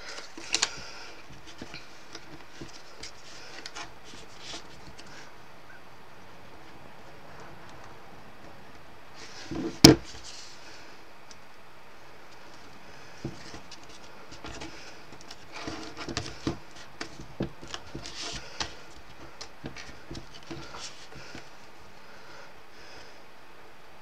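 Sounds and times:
card folding taps and rustles: 0:00.0 - 0:05.2, 0:09.4 - 0:10.5, 0:12.3 - 0:21.6.

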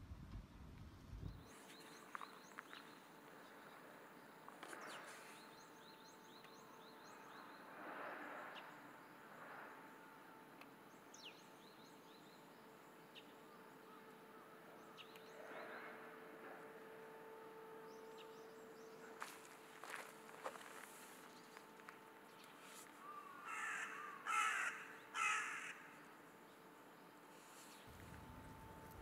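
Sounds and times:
faint steady hum: 0:00.0 - 0:29.0
soft rustling: 0:19.2 - 0:23.1
low rumble: 0:27.9 - 0:29.0.

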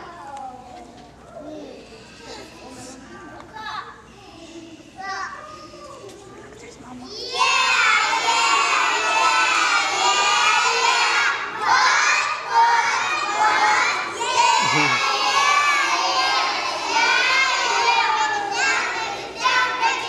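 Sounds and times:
children shout-singing: 0:07.2 - 0:20.0.

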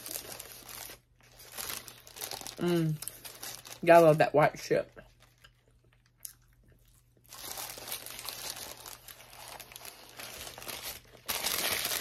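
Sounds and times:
taco shell crunching: 0:00.0 - 0:03.8, 0:05.1 - 0:12.0
paper wrapper crinkling: 0:00.0 - 0:04.2, 0:06.8 - 0:12.0.

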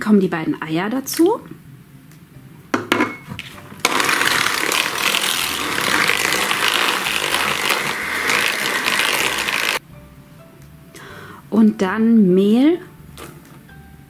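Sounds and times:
electric hand mixer beating: 0:03.8 - 0:09.8
mixer clicks: 0:03.8 - 0:09.8.

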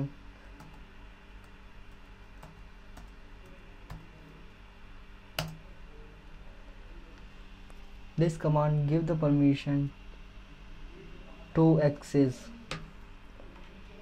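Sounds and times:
keyboard keystrokes: 0:05.4 - 0:05.6.

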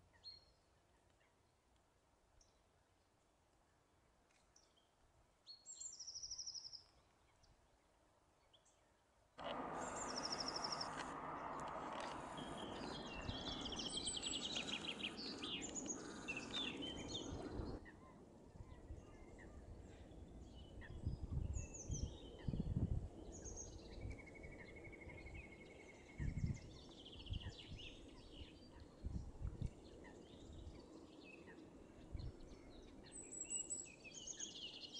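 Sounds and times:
small birds chirping: 0:09.4 - 0:34.9
bird trill: 0:09.8 - 0:11.0, 0:12.3 - 0:17.7.

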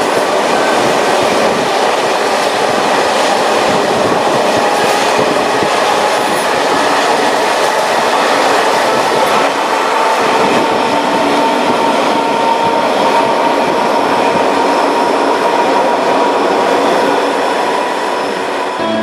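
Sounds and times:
train wheels rumbling on rails: 0:00.0 - 0:19.0
high-pitched whine: 0:18.1 - 0:19.0.

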